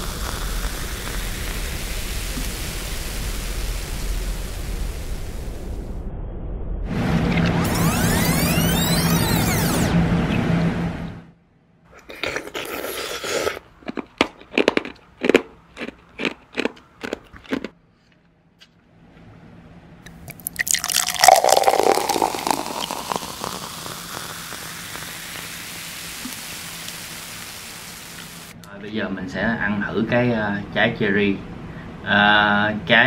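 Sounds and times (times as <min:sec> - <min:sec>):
fizzing bubbles hiss: 0:00.0 - 0:05.6, 0:20.2 - 0:28.6
ice cubes clinking into glass: 0:20.3 - 0:24.7
liquid pouring over ice: 0:20.3 - 0:27.4.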